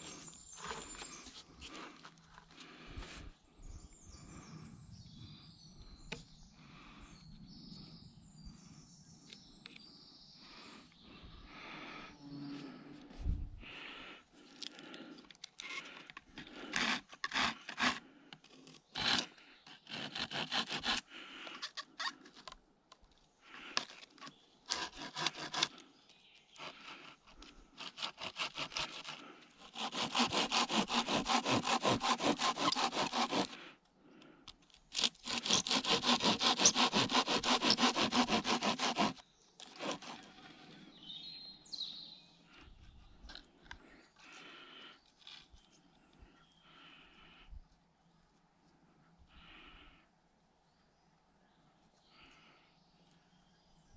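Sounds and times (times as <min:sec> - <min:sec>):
hand saw cutting wood: 0:15.6 - 0:22.6, 0:23.8 - 0:25.8, 0:26.5 - 0:33.7, 0:34.9 - 0:40.8.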